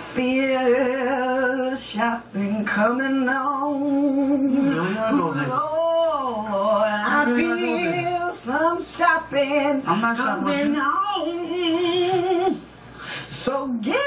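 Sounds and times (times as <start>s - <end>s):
woman and man singing a cappella: 0.0s - 14.0s.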